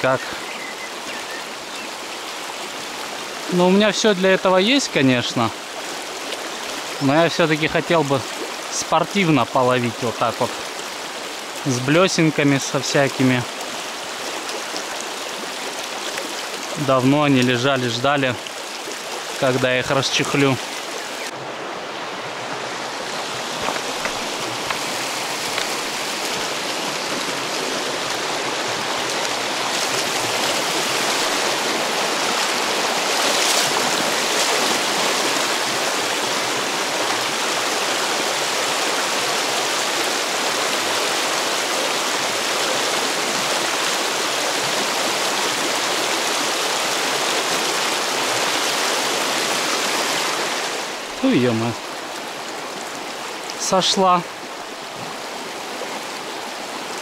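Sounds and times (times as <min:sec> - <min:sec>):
river water rushing: 0:00.0 - 0:57.0.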